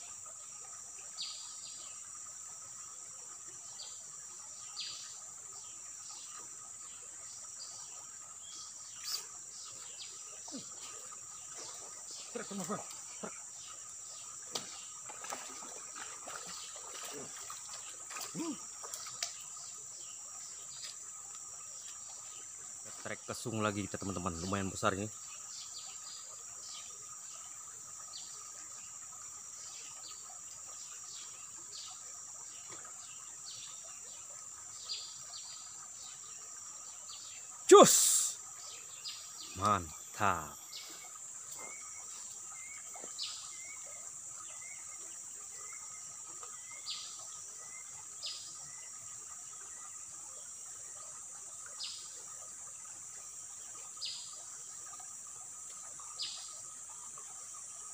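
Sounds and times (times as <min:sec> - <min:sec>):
insects droning: 0:00.0 - 0:57.9
bird chirps: 0:09.0 - 0:09.3.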